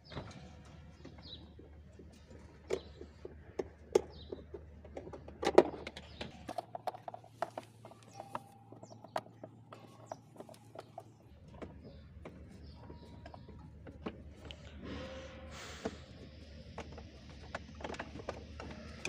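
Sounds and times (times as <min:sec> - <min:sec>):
plastic toy parts clicking and knocking: 0:02.7 - 0:12.4.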